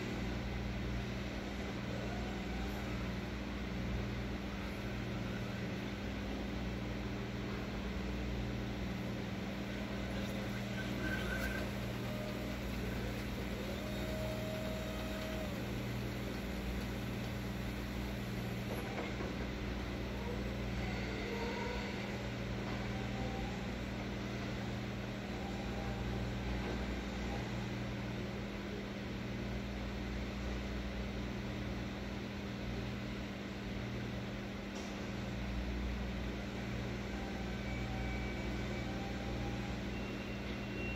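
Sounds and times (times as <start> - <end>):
electric truck humming: 8.9 - 27.6
short electric whines: 9.7 - 19.2.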